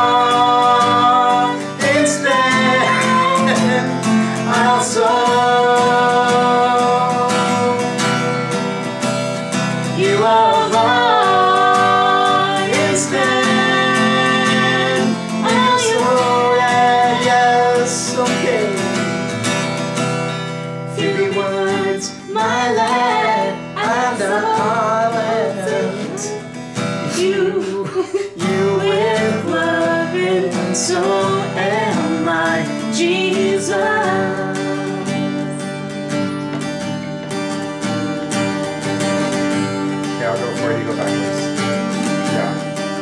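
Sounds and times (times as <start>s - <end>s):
man and woman singing: 0.0s - 9.0s, 9.8s - 19.3s, 20.9s - 35.9s
acoustic guitar strummed: 0.0s - 43.0s.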